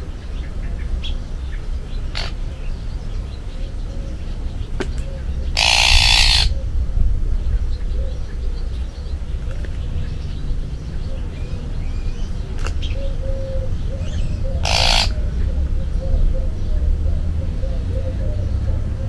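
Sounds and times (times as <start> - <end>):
steady low rumble: 0.0 - 19.0
harsh raspy magpie calls: 2.0 - 2.8, 5.4 - 6.7, 13.1 - 15.3
faint bird chirps: 11.0 - 16.4.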